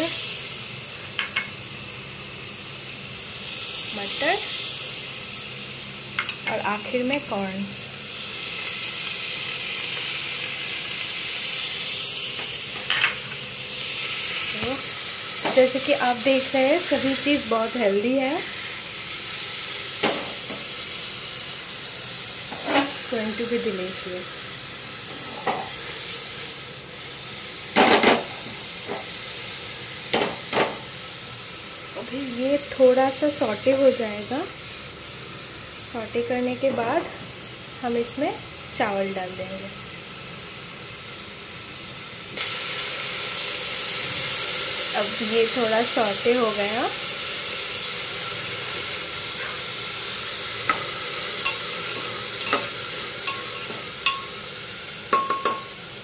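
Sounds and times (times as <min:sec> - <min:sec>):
vegetables sizzling in oil: 0:00.0 - 0:56.0
metal spoon clinking on pot: 0:52.4 - 0:54.4, 0:55.1 - 0:55.7.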